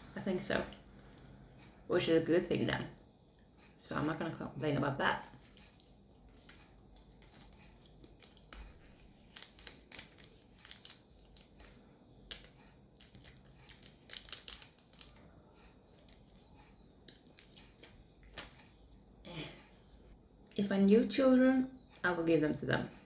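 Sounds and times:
plastic tube crinkling: 5.2 - 15.2, 15.9 - 18.9.

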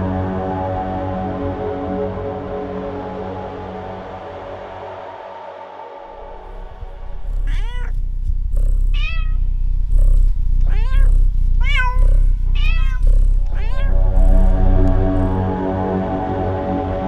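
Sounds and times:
steady low drone: 0.0 - 17.0
cats meowing: 7.2 - 8.0, 8.6 - 15.4.

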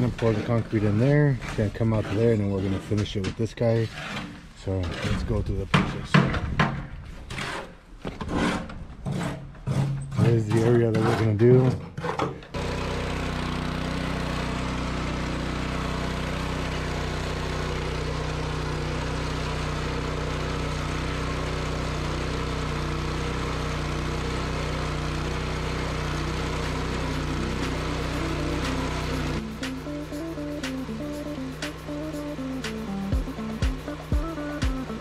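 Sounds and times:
small gasoline engine running: 12.6 - 35.0.

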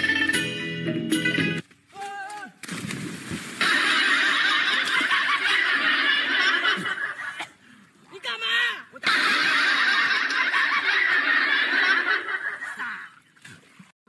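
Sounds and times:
background music: 0.0 - 1.6
water splashing: 1.8 - 14.0
person shouting: 1.9 - 2.6
people laughing and shouting: 3.6 - 7.6, 8.2 - 13.2.

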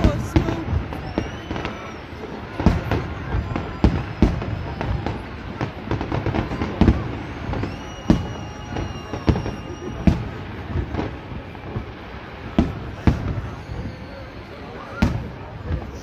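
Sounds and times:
fireworks bangs: 0.0 - 16.0
fireworks crackling: 0.0 - 16.0
high whistle: 0.2 - 5.3, 6.4 - 12.2, 13.0 - 15.3.

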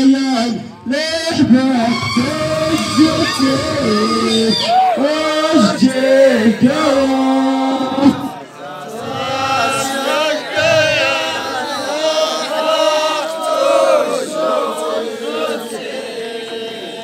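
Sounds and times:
men chanting together: 5.0 - 17.0.

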